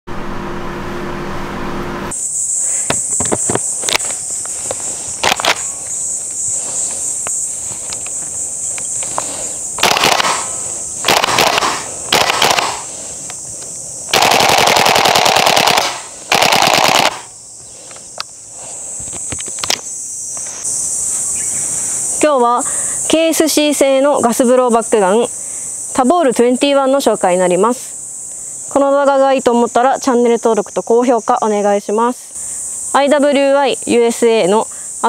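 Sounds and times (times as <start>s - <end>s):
airsoft rifle single shots: 5.2s - 5.7s, 9.8s - 12.9s, 14.1s - 17.3s
airsoft rifle bursts: 5.2s - 5.8s, 9.8s - 12.9s, 14.1s - 17.3s.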